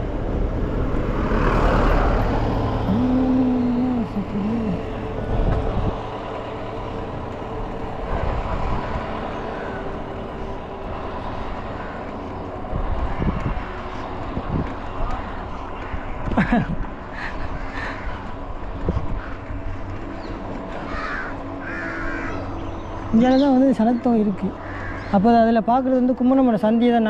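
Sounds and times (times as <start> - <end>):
passing vehicles: 0.0 - 27.0
road noise: 0.0 - 27.0
wind on microphone: 4.9 - 6.1, 12.6 - 15.4, 17.4 - 19.6.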